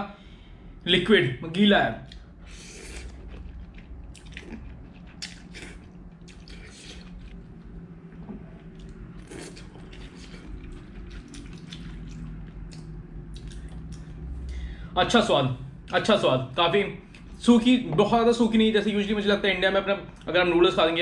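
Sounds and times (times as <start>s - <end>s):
steady low hum: 0.0s - 21.0s
slurping and chewing noodles: 2.1s - 7.5s, 8.6s - 14.1s.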